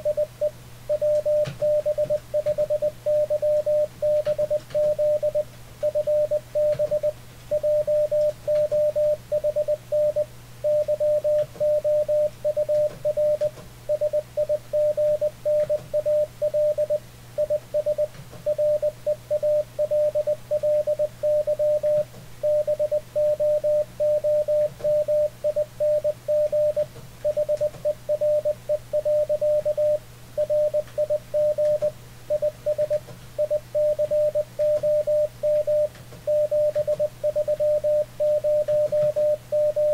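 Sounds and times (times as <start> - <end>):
low steady hum: 0.0 - 39.9
morse code tone: 0.0 - 39.9.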